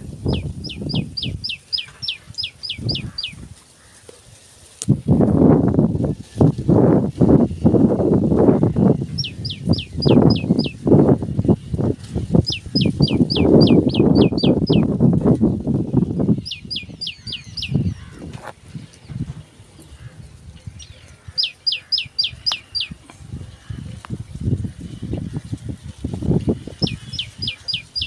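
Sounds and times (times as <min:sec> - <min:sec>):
bird calling sharp notes: 0:09.2 - 0:10.8, 0:12.4 - 0:14.9, 0:20.8 - 0:23.0, 0:26.8 - 0:28.0.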